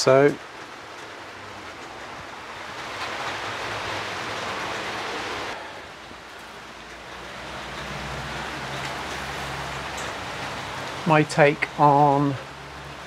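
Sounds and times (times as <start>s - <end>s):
rain heard from indoors: 0.0s - 13.0s.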